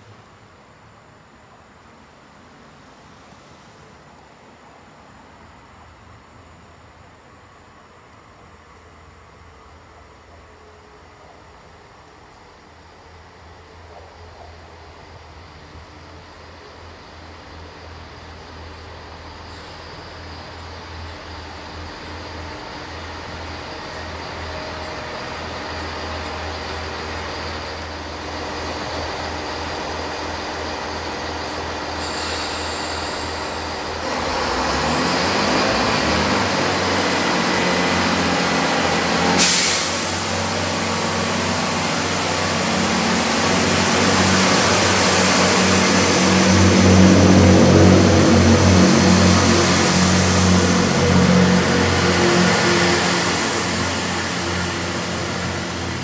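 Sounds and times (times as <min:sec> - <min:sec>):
diesel train engines: 0:00.0 - 0:56.0
brake squeal: 0:19.3 - 0:21.1
air hiss: 0:32.0 - 0:34.0, 0:39.3 - 0:46.4.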